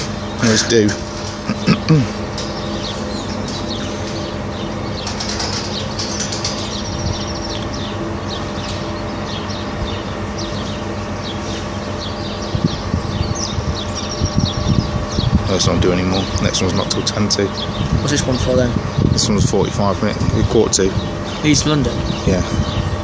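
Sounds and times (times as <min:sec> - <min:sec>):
low background rumble: 0:00.0 - 0:23.0
small birds chirping: 0:00.0 - 0:23.0.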